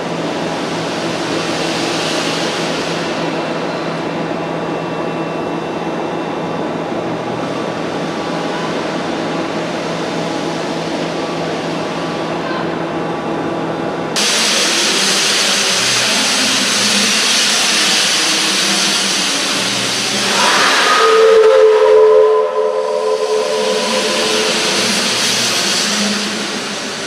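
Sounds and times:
steam venting hiss: 14.2s - 27.0s
steam whistle chord: 20.1s - 27.0s.

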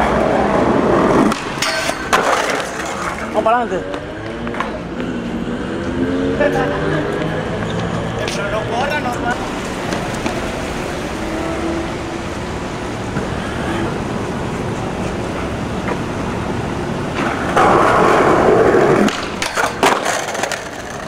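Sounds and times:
skateboard grinding on steel rail: 0.0s - 3.4s, 17.0s - 21.0s
skateboard wheels rolling on tiles: 0.0s - 6.0s, 7.0s - 11.8s, 12.5s - 21.0s
skateboard landing clacks: 1.2s - 3.2s, 17.1s - 21.0s.

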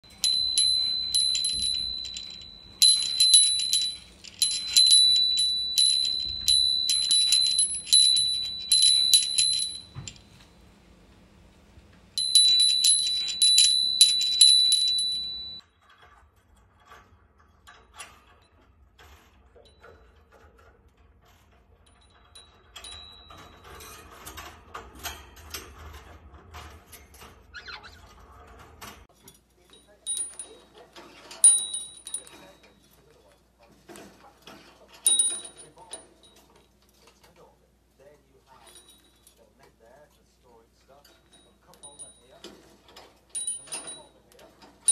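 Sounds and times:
metal bell ringing: 0.0s - 10.5s, 12.2s - 15.6s, 22.1s - 24.2s, 29.7s - 32.8s, 35.0s - 36.5s, 41.3s - 42.5s, 43.3s - 44.3s
rustling: 0.0s - 15.6s.

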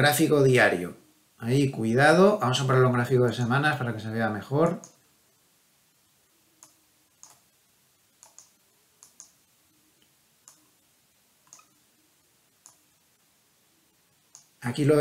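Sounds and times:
computer mouse clicks: 4.8s - 5.0s, 6.6s - 7.5s, 8.2s - 9.4s, 10.0s - 10.7s, 11.4s - 11.8s, 12.6s - 12.9s, 14.3s - 14.6s.

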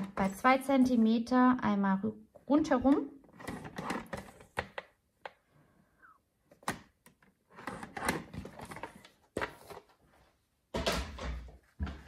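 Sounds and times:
plastic clicks and knocks: 2.8s - 5.4s.

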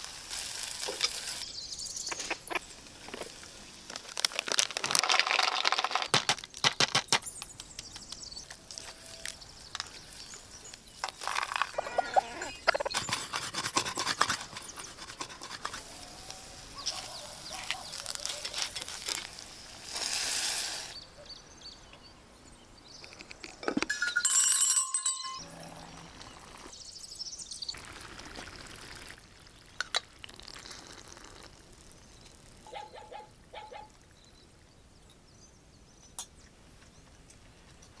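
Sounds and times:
wooden spatula scraping pot: 11.2s - 16.0s
ringing metallic clink: 23.9s - 25.7s
stew being ladled: 27.8s - 32.6s.

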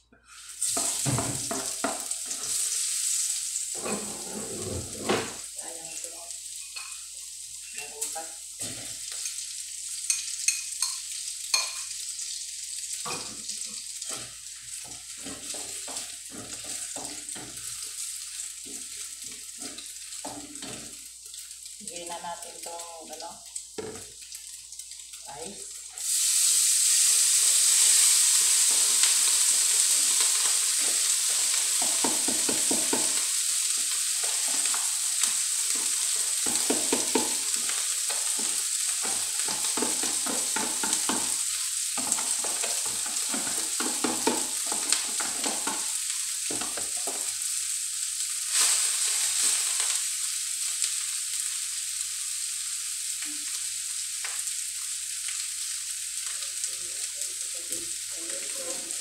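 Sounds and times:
rice sizzling in hot oil: 0.0s - 59.0s
spoon tapping and scraping: 10.1s - 11.9s, 31.7s - 33.3s, 34.4s - 41.4s, 42.0s - 45.9s.

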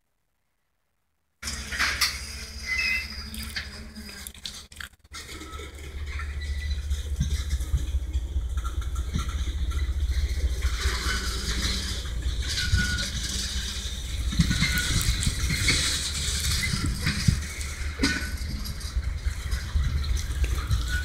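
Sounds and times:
faint wheel squeals: 1.5s - 4.0s, 9.2s - 18.9s, 20.6s - 21.0s
freight train wheels rumbling on rails: 5.2s - 21.0s.

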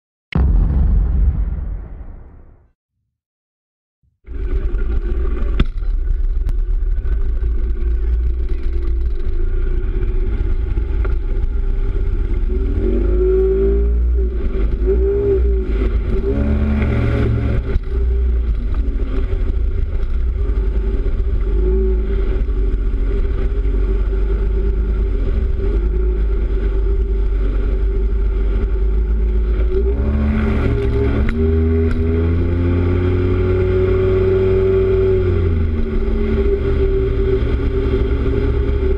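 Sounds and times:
outboard motor running: 4.3s - 12.7s
low wind rumble: 4.3s - 38.9s.

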